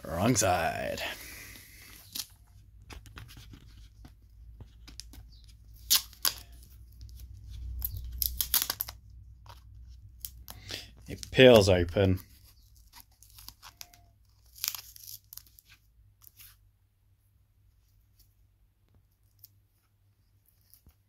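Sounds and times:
paper crinkling: 1.5 - 16.6.

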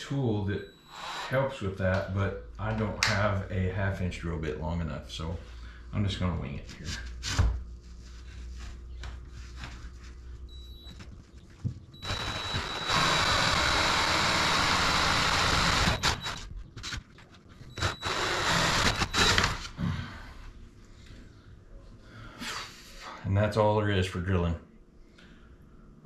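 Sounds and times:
cordless drill boring: 0.9 - 1.3, 12.0 - 16.4, 17.8 - 19.7
drill cutting noise: 0.9 - 1.5, 12.0 - 16.5, 17.8 - 19.7.

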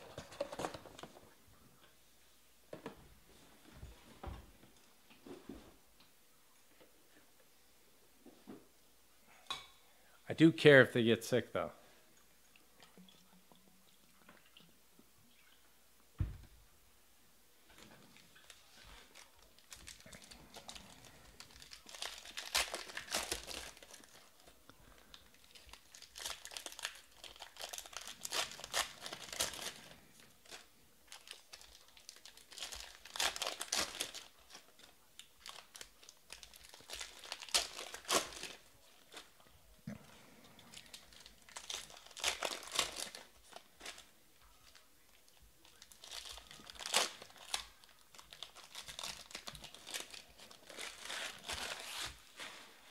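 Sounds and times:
foil wrappers tearing and crinkling: 18.4 - 39.4, 40.7 - 44.9, 45.6 - 52.6.

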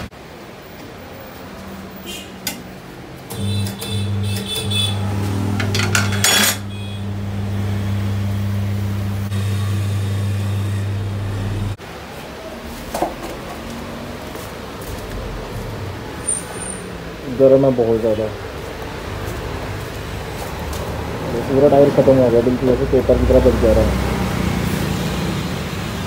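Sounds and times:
electric motor humming: 3.4 - 11.8.

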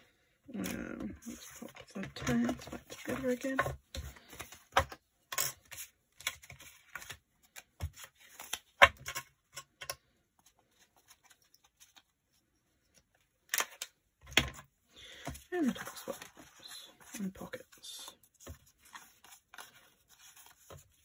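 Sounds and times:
paper tags rustling and tapping: 0.6 - 10.0.

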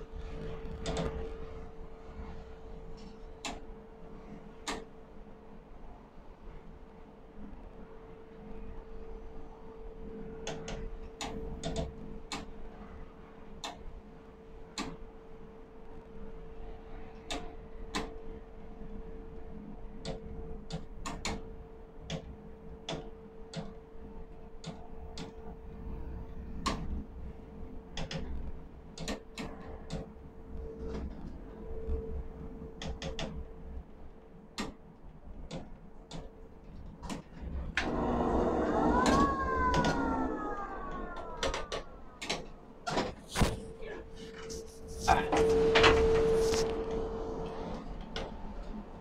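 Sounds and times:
steady hum and faint tone: 0.0 - 49.0
machine whining: 37.8 - 47.8.

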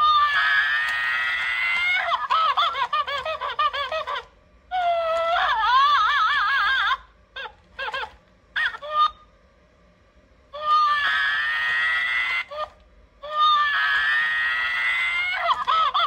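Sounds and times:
toy monkey crying through speaker: 0.0 - 9.3, 10.6 - 16.0.

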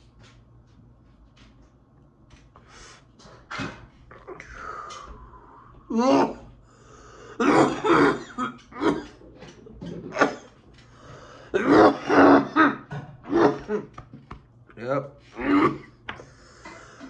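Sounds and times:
man coughing hard: 7.4 - 9.2, 10.0 - 10.6, 11.5 - 13.9, 15.3 - 16.0.

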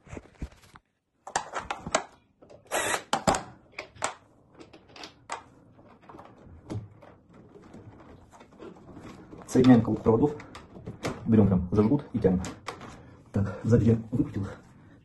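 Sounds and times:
plastic and metal parts rattling: 2.8 - 13.1.

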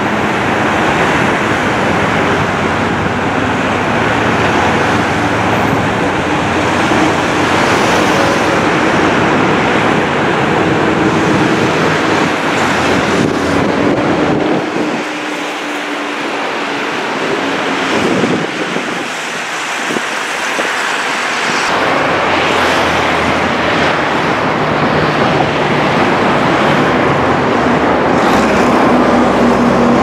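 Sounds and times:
jet engines idling: 0.0 - 30.0.

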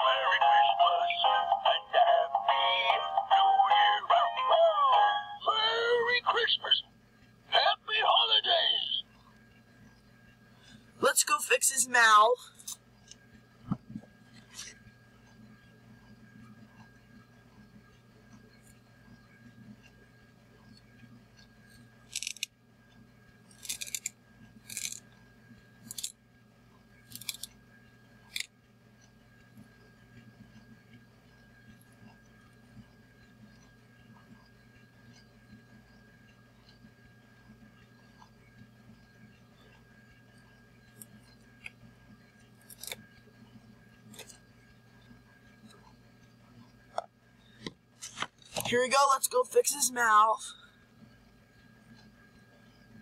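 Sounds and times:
faint hum: 0.0 - 53.0
scissors snipping fabric: 23.6 - 24.1, 24.7 - 25.0, 42.7 - 43.0.

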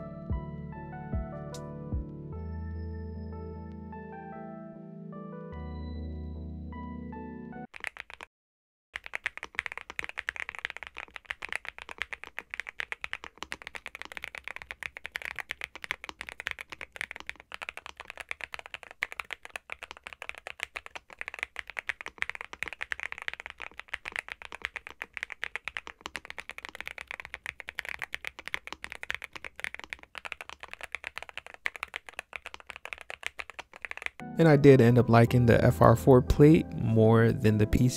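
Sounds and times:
typing on mechanical keyboard: 7.7 - 8.3, 9.0 - 34.2.

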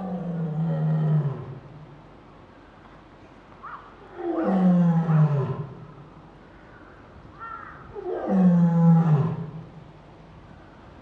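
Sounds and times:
lioness roaring: 0.0 - 1.7, 4.0 - 5.9, 7.9 - 9.7.

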